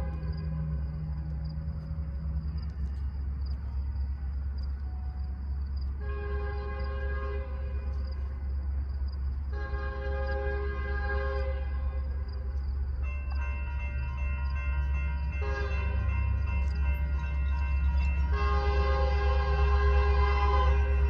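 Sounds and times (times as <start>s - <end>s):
low rumble: 0.0s - 13.1s
locomotive horn blasts: 6.0s - 8.1s, 9.5s - 12.2s, 15.3s - 16.4s, 17.0s - 21.0s.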